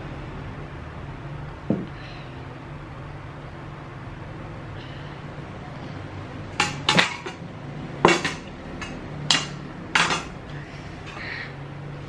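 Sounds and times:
dishes clanking in metal bowl: 6.6s - 7.4s, 8.0s - 10.4s.

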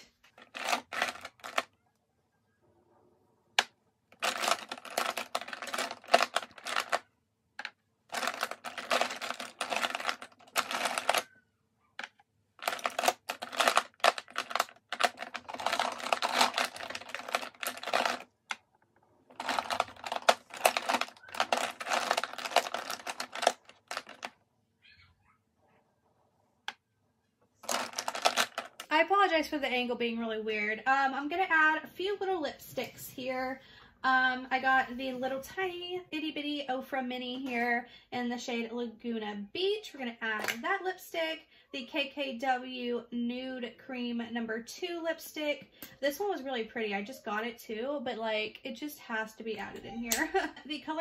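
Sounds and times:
plastic makeup cases clicking: 0.3s - 1.7s, 3.6s - 7.0s, 7.6s - 11.3s, 12.0s - 24.4s, 27.6s - 28.9s, 40.4s - 40.6s.

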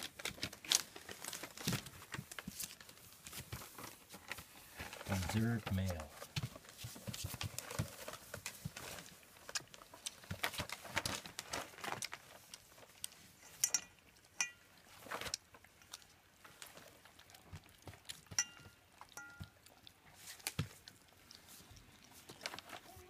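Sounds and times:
puppy paws scratching on paper: 0.0s - 13.4s, 19.6s - 23.0s.

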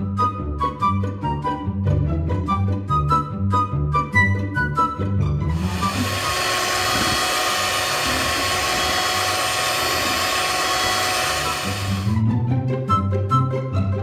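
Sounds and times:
electric mixer whirring: 5.5s - 12.2s.

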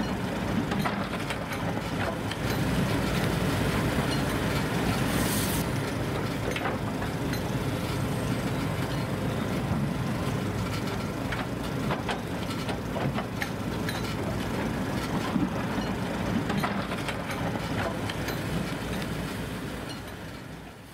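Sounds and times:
diesel machinery rumbling: 0.0s - 20.9s
clanks and knocks: 0.7s - 2.6s, 10.6s - 18.5s.

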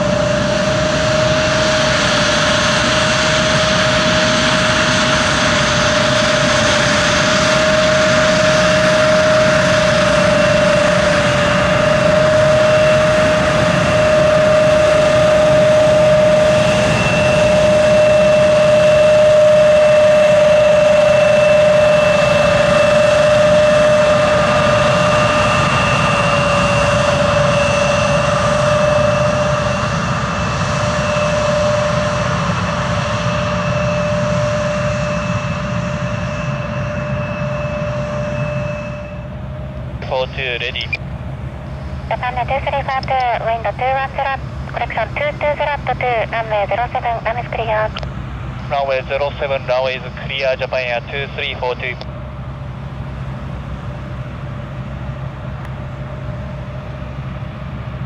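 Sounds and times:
jet engine whine: 0.0s - 58.0s.

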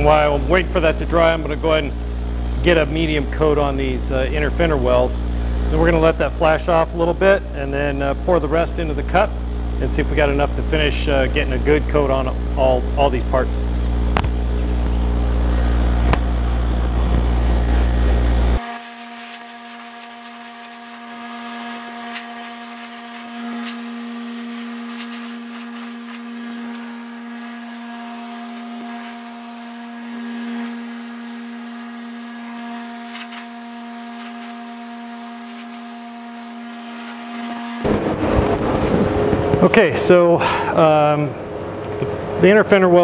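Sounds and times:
pitched hum: 0.0s - 43.0s
shop machinery hum: 0.0s - 43.0s
air spray gun hiss: 21.6s - 38.6s.

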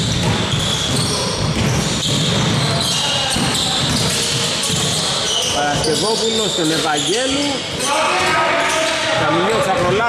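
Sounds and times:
basketball dribbling: 0.0s - 5.2s
short high squeaks: 4.8s - 8.0s.

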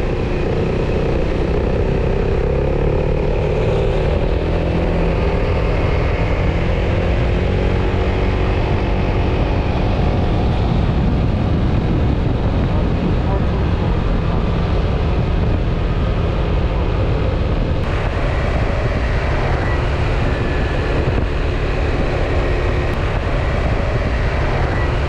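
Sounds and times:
scooter engine running: 0.0s - 8.7s, 17.8s - 25.0s.

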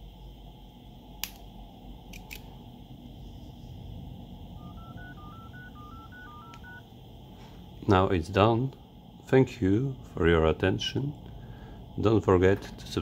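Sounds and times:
sharp click: 1.2s - 1.5s, 2.1s - 2.5s
phone keypad touch-tone beeps: 4.6s - 6.8s.

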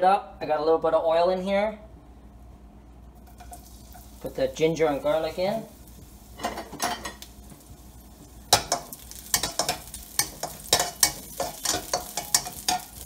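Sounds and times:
sizzling in hot oil: 3.1s - 13.0s
spatula scraping and tapping pan: 3.2s - 4.2s, 5.9s - 13.0s.

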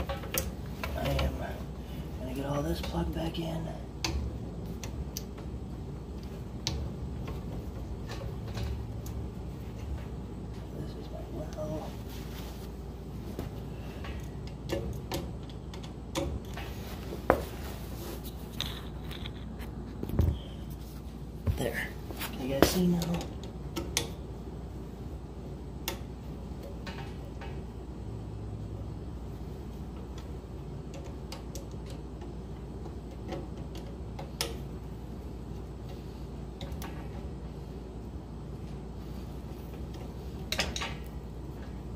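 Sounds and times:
clicks and knocks of handling parts: 0.0s - 10.8s, 12.6s - 17.6s, 21.4s - 24.3s, 25.7s - 27.8s, 28.8s - 37.6s, 38.4s - 41.9s
steady low hum: 0.0s - 41.9s.

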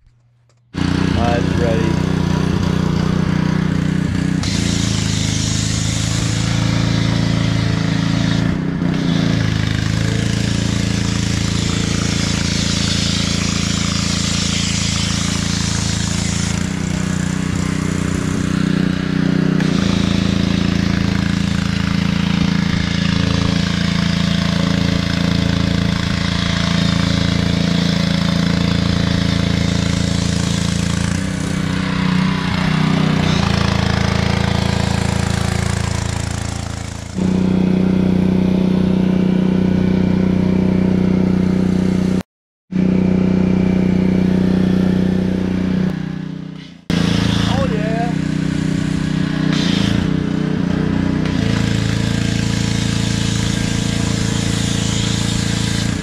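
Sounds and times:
pressure washer engine running: 0.7s - 56.0s
water and foam spraying: 4.3s - 19.0s, 19.6s - 37.7s, 46.9s - 50.1s, 51.2s - 56.0s.

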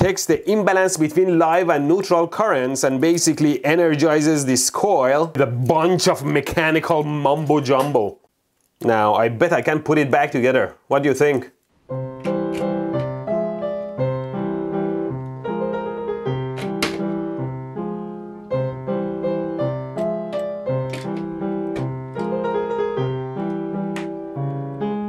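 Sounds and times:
piano music: 11.9s - 25.0s
sharp clicks: 20.0s - 22.4s.

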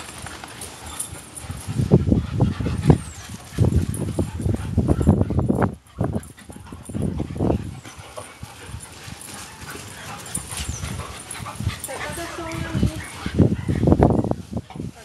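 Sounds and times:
dogs scuffling: 0.0s - 15.0s.

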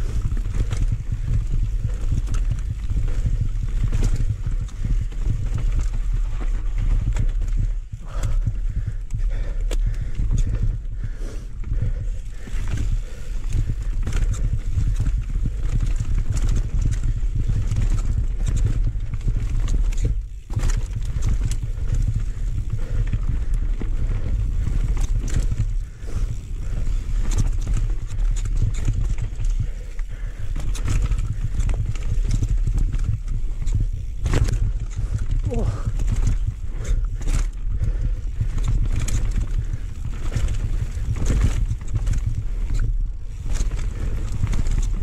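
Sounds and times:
bike clattering over bumps: 0.0s - 45.0s
wind rumbling on microphone: 0.0s - 45.0s
tyres on dirt: 11.7s - 45.0s.

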